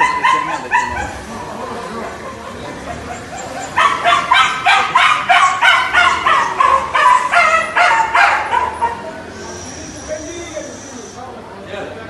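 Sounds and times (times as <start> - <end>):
dog yelping: 0.0 - 1.9, 2.8 - 9.5.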